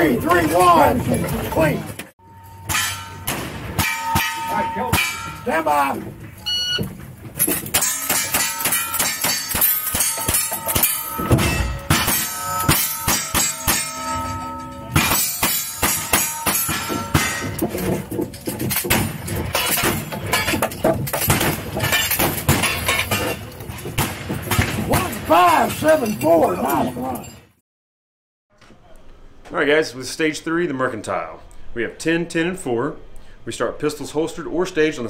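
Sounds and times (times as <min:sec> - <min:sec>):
steel targets ringing: 0:02.2 - 0:06.8, 0:07.4 - 0:23.5.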